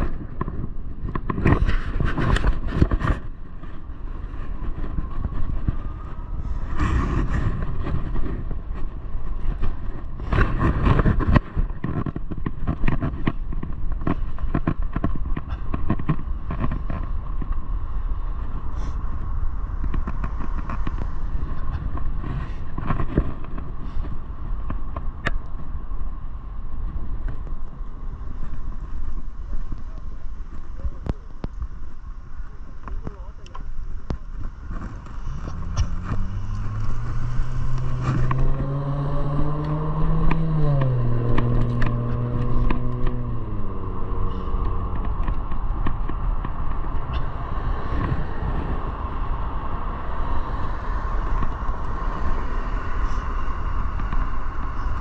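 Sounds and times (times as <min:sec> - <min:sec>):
tyre and wind rumble: 0:00.0 - 0:55.0
electric hub motor whine: 0:28.1 - 0:55.0.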